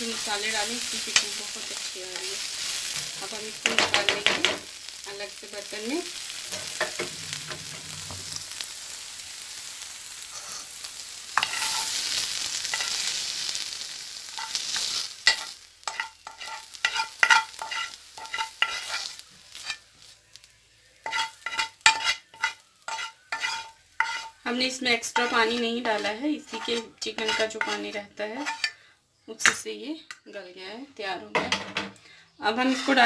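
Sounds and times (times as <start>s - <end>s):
chicken sizzling in frying pan: 0.0s - 28.7s, 32.4s - 33.0s
spoon scraping and clinking: 11.4s - 12.0s, 14.4s - 19.8s, 21.0s - 24.4s, 25.2s - 28.8s, 32.6s - 33.0s.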